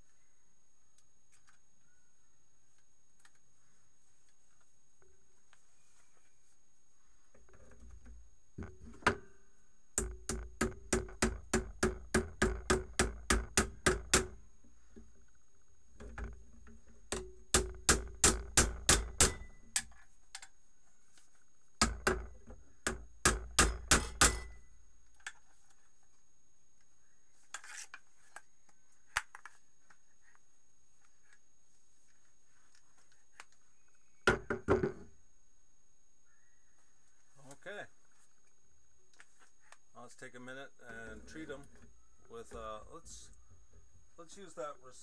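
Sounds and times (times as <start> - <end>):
clippers knocking with ringing tone: 17.2 - 19.7, 23.6 - 24.7.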